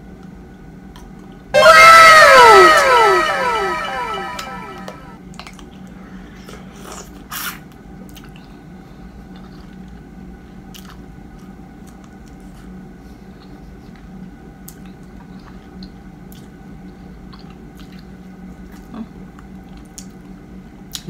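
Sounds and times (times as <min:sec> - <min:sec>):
falling tones: 0:01.6 - 0:05.1
chewing with wet mouth clicks: 0:06.8 - 0:08.6, 0:09.3 - 0:10.0, 0:10.7 - 0:12.7, 0:13.4 - 0:20.3.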